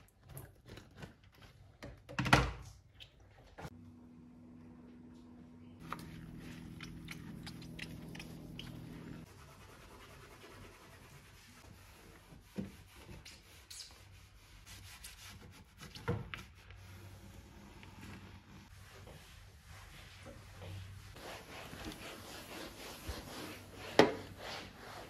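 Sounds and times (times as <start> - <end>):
low steady hum: 3.7 - 9.6
cloth wiping tiles: 5.8 - 25.0.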